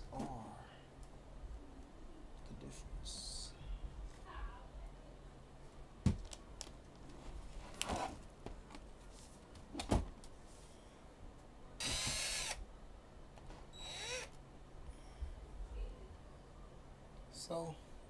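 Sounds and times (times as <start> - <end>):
cordless drill whirring: 11.8 - 12.6, 13.8 - 14.4.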